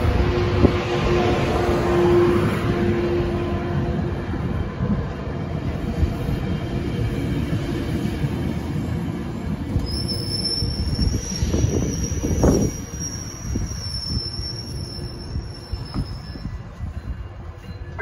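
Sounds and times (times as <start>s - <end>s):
train wheels rumbling on rail: 0.0s - 18.0s
high wheel squeal: 9.8s - 16.7s.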